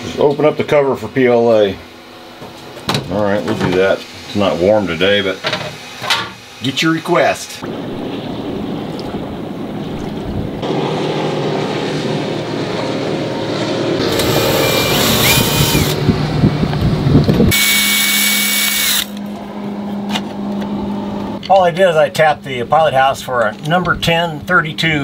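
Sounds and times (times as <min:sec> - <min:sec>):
wind noise: 0:07.6 - 0:10.8, 0:14.0 - 0:17.6
cordless drill whining: 0:14.0 - 0:16.0, 0:17.5 - 0:19.2.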